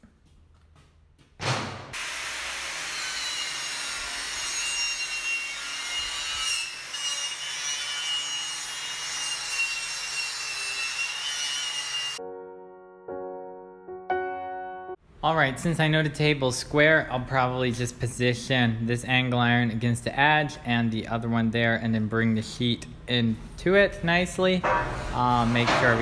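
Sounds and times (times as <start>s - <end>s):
angle grinder grinding steel: 2.1s - 12.2s
piano music: 12.2s - 15.0s.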